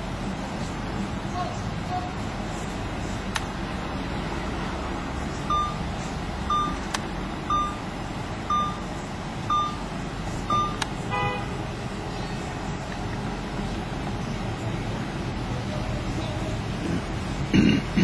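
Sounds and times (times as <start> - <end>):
street traffic: 0.0 - 18.0
short high electronic beeps: 5.5 - 5.9, 6.5 - 6.8, 7.5 - 7.8, 8.5 - 8.8, 9.5 - 9.8, 10.5 - 10.8
car horn toot: 10.5 - 11.6.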